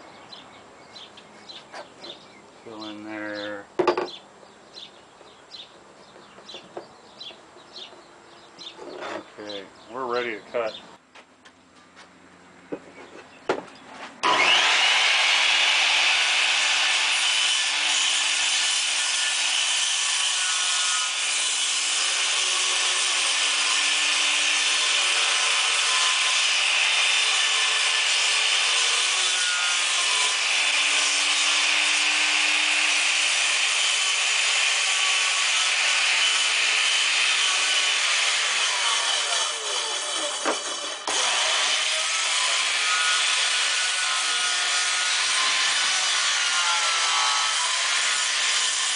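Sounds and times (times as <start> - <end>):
circular saw cutting plywood: 14.2 - 48.9.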